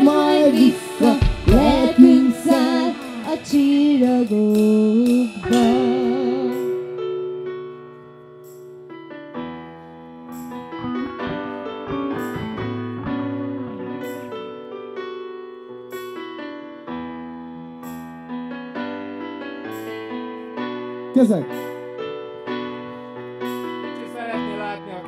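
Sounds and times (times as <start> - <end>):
woman singing with vibrato: 0.0 - 7.0
electric keyboard chords: 0.0 - 25.0.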